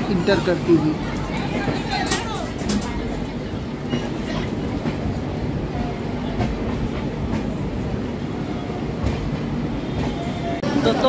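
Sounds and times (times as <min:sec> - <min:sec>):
train rail rumble: 0:00.0 - 0:11.0
train wheel clicks: 0:01.1 - 0:05.2.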